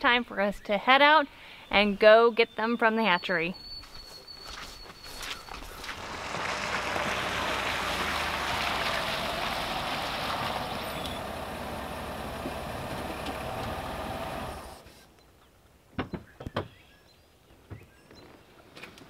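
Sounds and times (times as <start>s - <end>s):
tyres crunching and splashing on gravel: 4.4s - 14.7s
low engine rumble: 5.8s - 14.9s.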